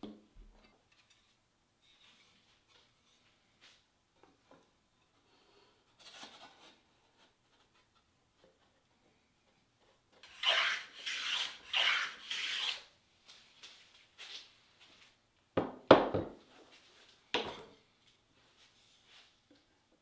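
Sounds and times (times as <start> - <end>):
hand plane shaving wood: 10.2 - 12.8.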